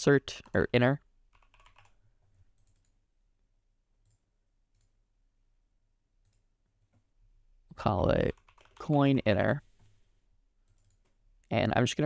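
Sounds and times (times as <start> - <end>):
computer mouse clicks: 10.7 - 11.2.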